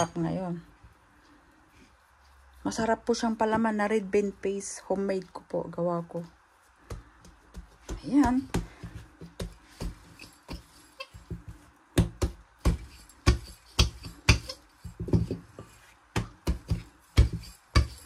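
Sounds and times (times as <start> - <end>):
rolling pin knocking on dough: 6.8 - 18.0.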